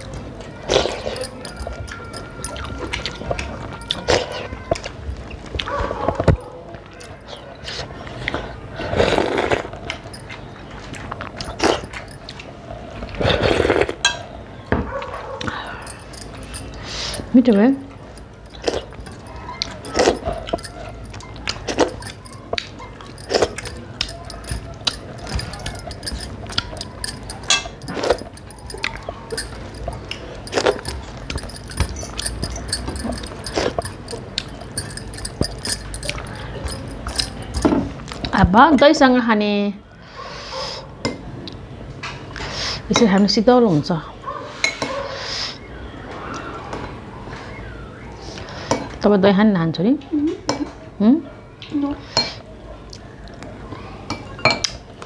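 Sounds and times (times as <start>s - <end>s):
wet chewing: 0.7s - 14.0s, 17.9s - 38.4s
low steady hum: 15.4s - 39.0s.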